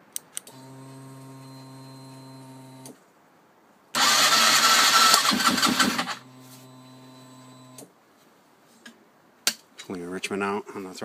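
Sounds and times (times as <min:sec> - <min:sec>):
electric starter cranking engine: 0:04.0 - 0:07.8.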